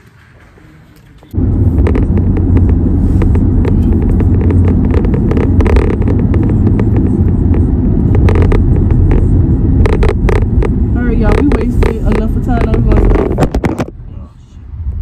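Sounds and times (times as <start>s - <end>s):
car interior rumble: 1.3s - 15.0s
clicks and rustles: 1.8s - 13.9s.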